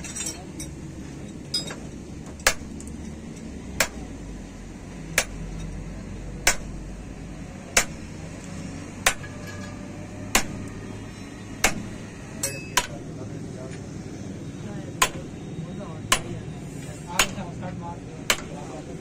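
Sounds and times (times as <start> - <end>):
hammer striking metal pin: 5.2 - 5.4, 6.4 - 6.7, 9.0 - 10.7, 11.6 - 13.0.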